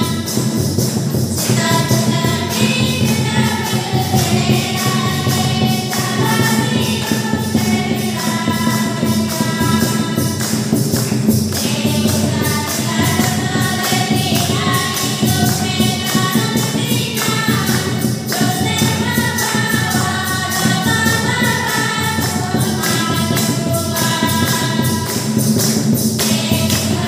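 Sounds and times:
choir singing a hymn: 0.0s - 27.0s
tambourine beat: 0.0s - 27.0s.

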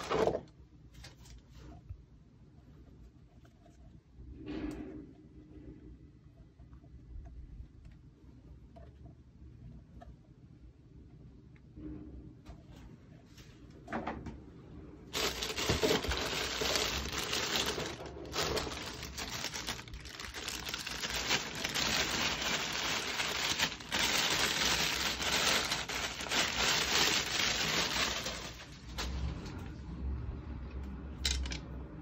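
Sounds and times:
plastic bag crinkling: 0.0s - 0.4s, 15.1s - 29.3s.

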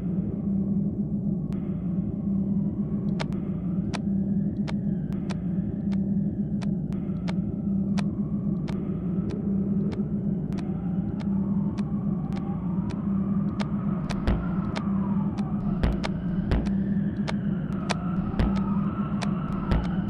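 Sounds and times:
low rumbling drone with hum: 0.0s - 20.0s
sharp clicks: 10.5s - 14.8s, 15.4s - 20.0s.

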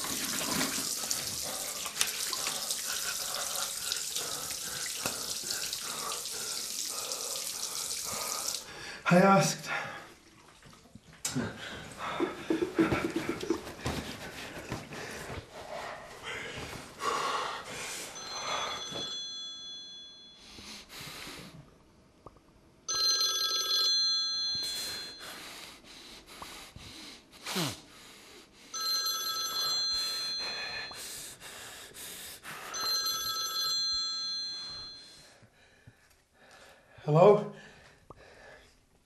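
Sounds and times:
phone electronic ringtone: 22.9s - 25.2s, 28.8s - 30.7s, 32.8s - 35.1s.

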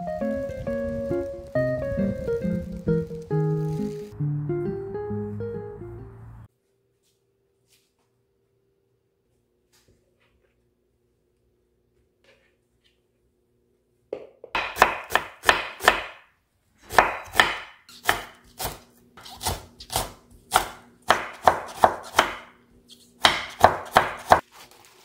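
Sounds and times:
knife chopping on wooden board: 14.5s - 16.2s, 16.8s - 22.5s, 23.2s - 24.4s.

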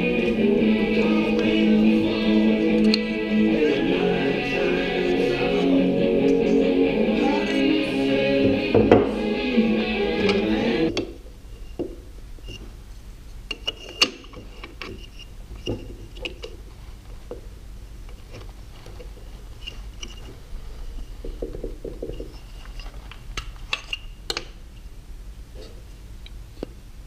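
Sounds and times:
wooden parts clicking and knocking: 21.1s - 24.6s.

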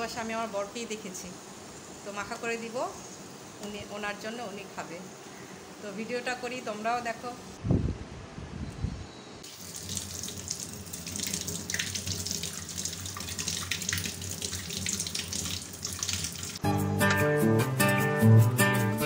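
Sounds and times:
tap water running and splashing: 9.4s - 16.6s
plucked guitar music: 16.6s - 19.0s.

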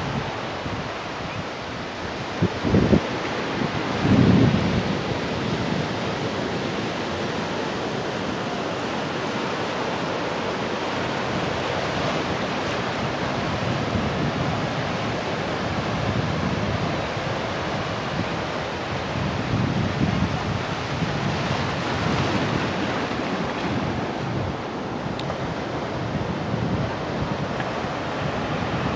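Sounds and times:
sea surf breaking on rocks: 0.0s - 28.9s
wind buffeting microphone: 12.9s - 28.9s.

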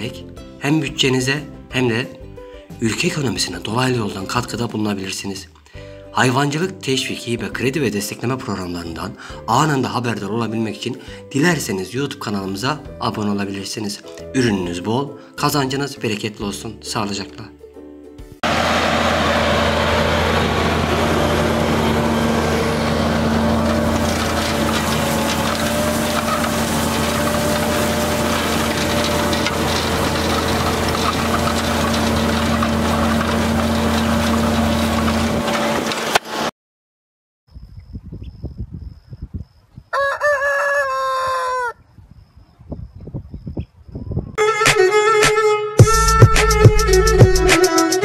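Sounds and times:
tractor engine running under load: 18.4s - 36.5s
rooster crowing: 39.9s - 41.8s.

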